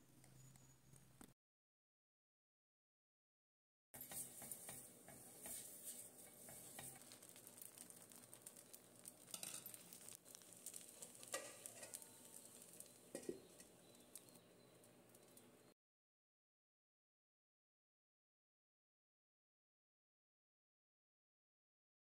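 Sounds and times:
batter sizzling in a pan: 4.0 - 15.7
steel lid and utensils clinking: 9.2 - 10.0, 10.7 - 14.4.

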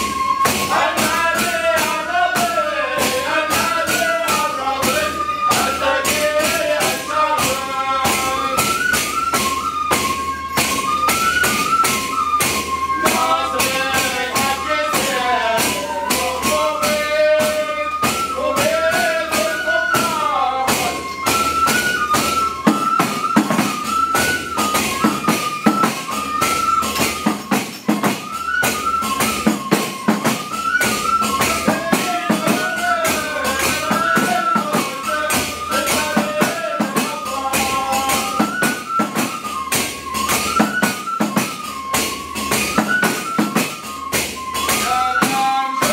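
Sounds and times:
frame drum beats: 0.0 - 45.9
men chanting: 0.6 - 8.8, 13.0 - 21.2, 31.5 - 38.7, 44.7 - 45.9.

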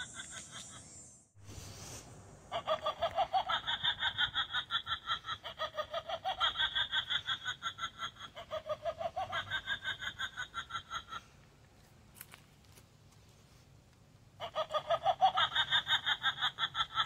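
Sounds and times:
recorded witch's cackle: 0.0 - 1.2, 2.4 - 11.6, 14.3 - 17.0.

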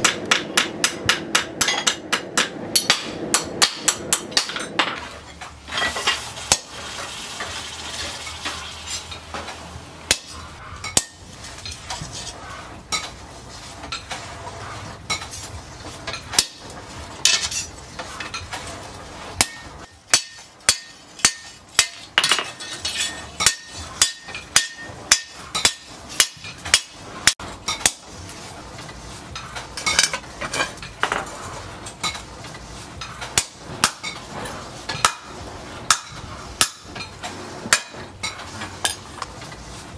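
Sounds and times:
hammer striking steel on anvil: 0.0 - 5.1, 5.7 - 6.8, 10.1 - 11.2, 16.3 - 16.7, 19.4 - 28.1, 33.4 - 34.2, 34.9 - 37.0.

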